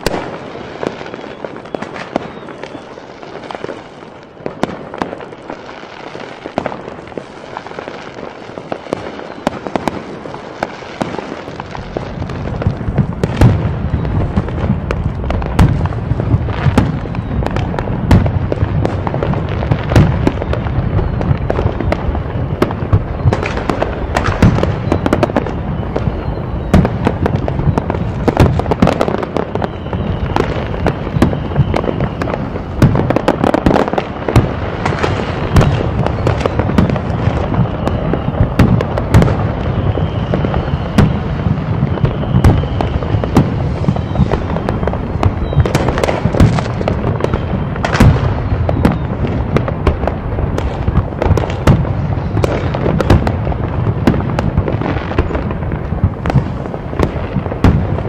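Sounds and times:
fireworks bursting: 0:00.0 - 0:58.0
faint high whistle: 0:01.0 - 0:03.2, 0:09.1 - 0:09.7, 0:17.0 - 0:18.3, 0:20.2 - 0:23.6, 0:24.6 - 0:28.0, 0:29.0 - 0:32.4, 0:35.6 - 0:38.6, 0:39.5 - 0:46.1, 0:47.2 - 0:49.2.

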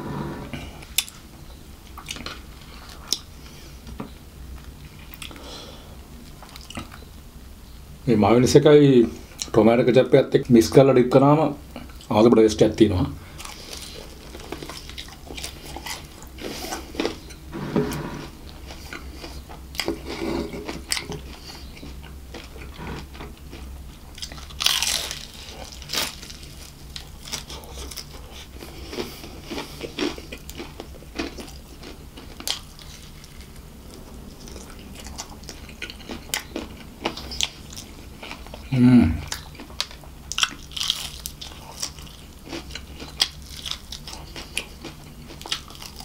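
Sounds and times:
low steady hum: 0:00.0 - 0:46.0
chewing: 0:06.2 - 0:07.0, 0:13.4 - 0:17.5, 0:18.2 - 0:46.0
fried chicken crust crunching: 0:18.6 - 0:33.7, 0:39.3 - 0:46.0.

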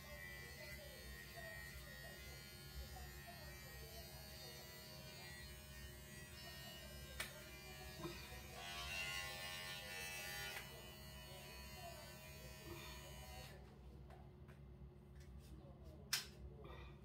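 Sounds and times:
electric hair clippers buzzing: 0:00.0 - 0:13.6.

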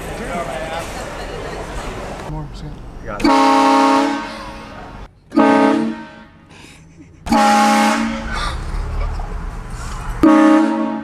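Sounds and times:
train horn blasts: 0:03.2 - 0:06.4, 0:07.3 - 0:08.2, 0:10.2 - 0:11.0.

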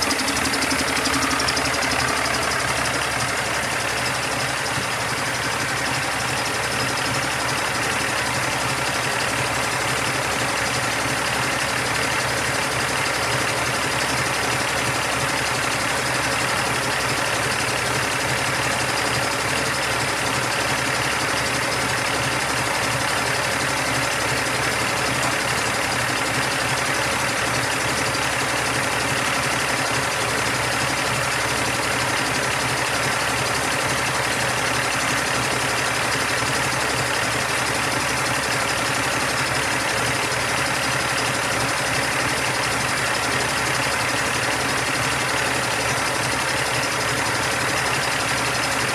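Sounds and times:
diesel engine idling: 0:00.0 - 0:48.9.

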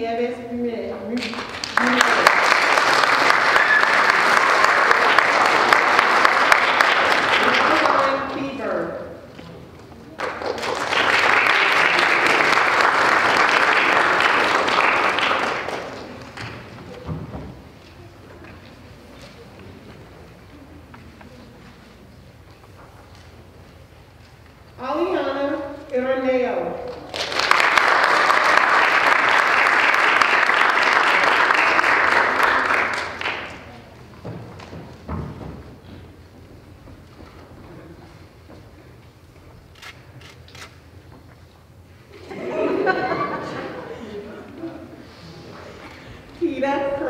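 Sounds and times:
audience applauding: 0:01.3 - 0:08.3, 0:10.1 - 0:16.8, 0:26.9 - 0:34.0.

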